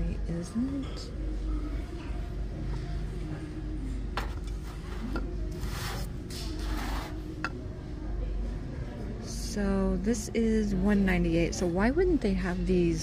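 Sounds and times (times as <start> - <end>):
pestle scraping in mortar: 4.2 - 7.2.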